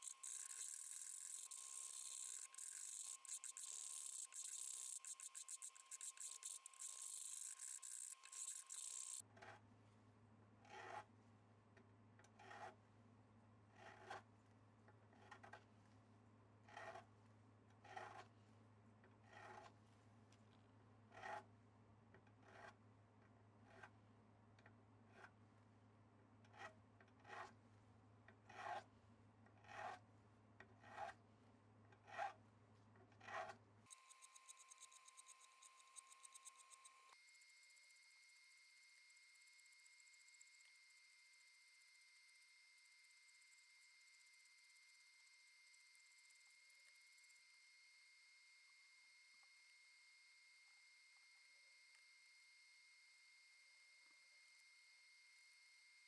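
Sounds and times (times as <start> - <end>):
hand file rasping: 0.0 - 9.2, 33.2 - 37.1.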